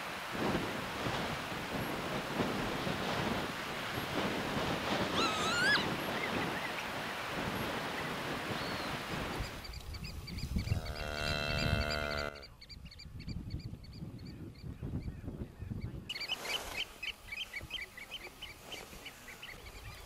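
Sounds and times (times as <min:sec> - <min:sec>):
small birds chirping: 0:07.9 - 0:20.0
cow lowing: 0:10.7 - 0:12.5.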